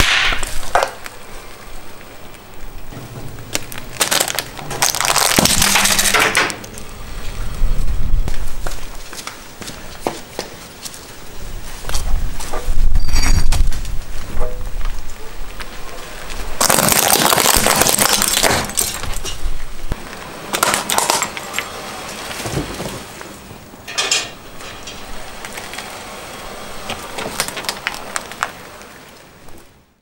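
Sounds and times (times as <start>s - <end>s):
hard plastic cracking under tyre: 0.0s - 1.2s, 3.5s - 6.8s, 16.5s - 21.7s, 26.9s - 29.0s.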